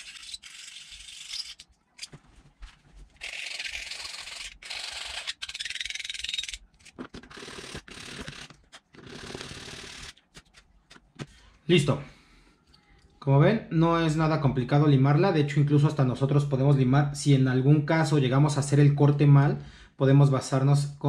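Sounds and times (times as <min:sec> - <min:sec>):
hand file rasping: 0:03.2 - 0:06.6.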